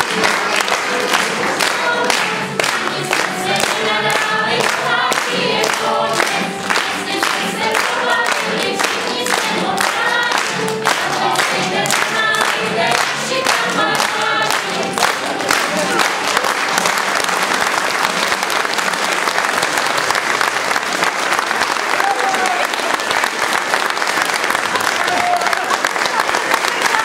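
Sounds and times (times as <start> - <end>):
group of voices singing: 0.0 - 16.3
applause: 0.0 - 27.0
hand-clapping in time: 0.0 - 27.0.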